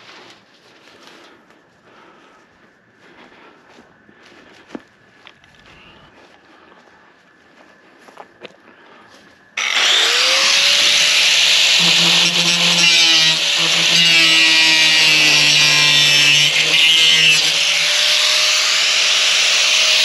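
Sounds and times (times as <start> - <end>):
angle grinder cutting metal: 9.6 - 20.0.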